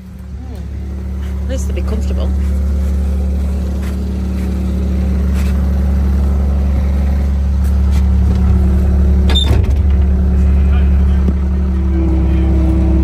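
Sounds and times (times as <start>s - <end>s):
loader engine running: 0.0s - 13.0s.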